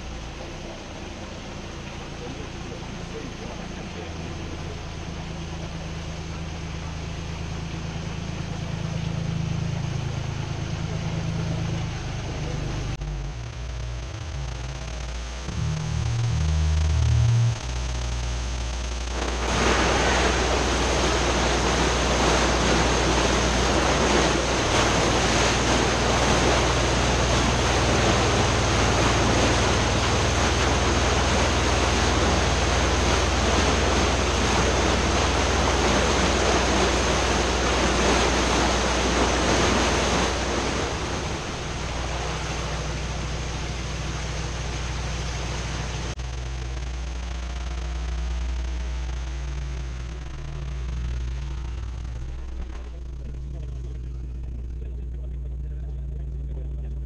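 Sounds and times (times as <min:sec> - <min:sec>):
low engine hum: 0:00.0 - 0:57.0
water gushing into lock chamber: 0:19.1 - 0:46.2.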